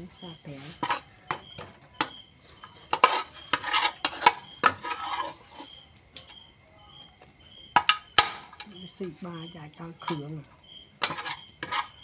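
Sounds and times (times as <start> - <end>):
metal spatula scraping wok: 0.1 - 5.8, 9.9 - 10.4, 11.0 - 12.0.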